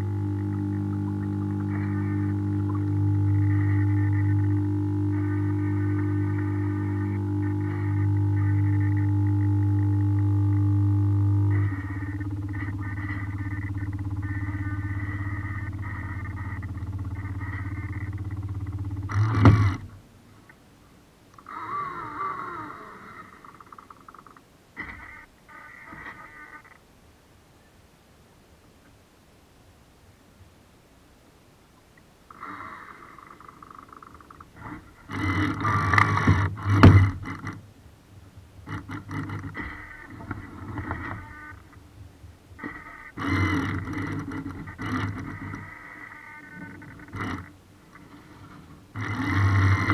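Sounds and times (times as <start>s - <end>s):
fast ticking: 0.0s - 19.9s
low mechanical hum: 0.0s - 49.9s
sharp knocks: 35.9s - 37.4s.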